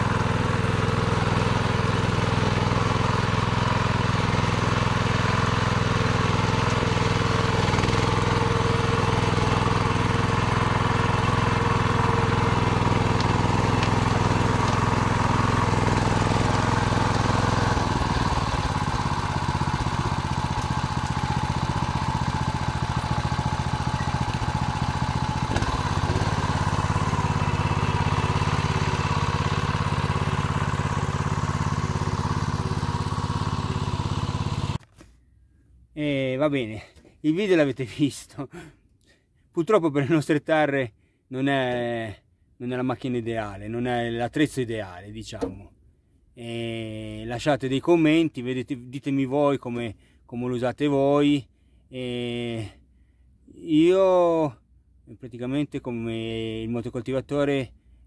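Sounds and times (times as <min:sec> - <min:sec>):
tractor engine running under load: 0:00.0 - 0:34.8.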